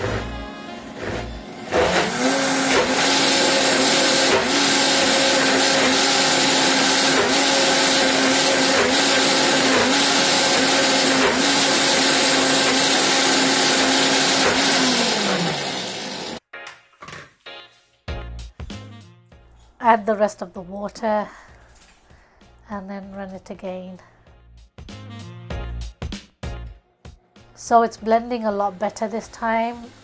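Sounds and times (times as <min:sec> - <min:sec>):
blender motor whining: 0:00.0 - 0:16.4.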